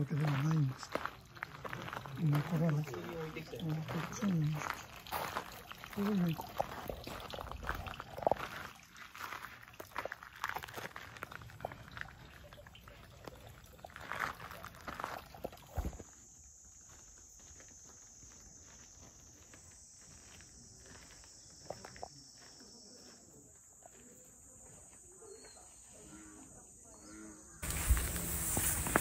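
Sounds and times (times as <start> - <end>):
footsteps crunching on gravel: 0.0 - 25.6, 27.6 - 29.0
high-pitched insect drone: 15.7 - 23.3, 26.1 - 29.0.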